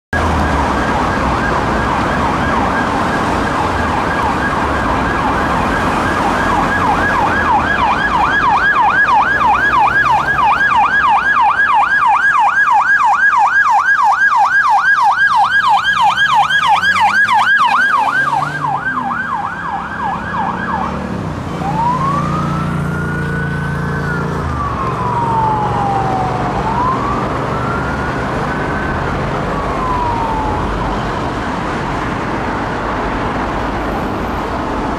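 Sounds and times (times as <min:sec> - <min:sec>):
police siren wail: 0:00.1 - 0:34.9
police siren yelp: 0:00.2 - 0:31.6
vehicle engine passing: 0:15.2 - 0:34.9.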